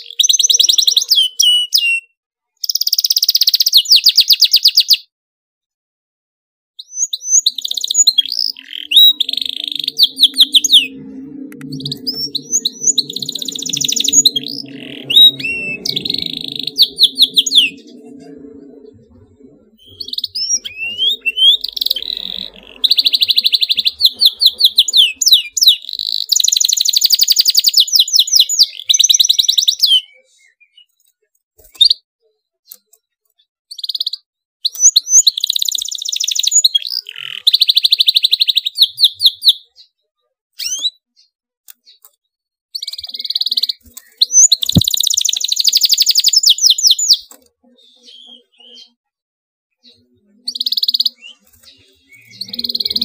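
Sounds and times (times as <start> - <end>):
canary singing trills: 0.0 - 5.0, 6.8 - 31.0, 42.8 - 49.0, 49.8 - 53.0.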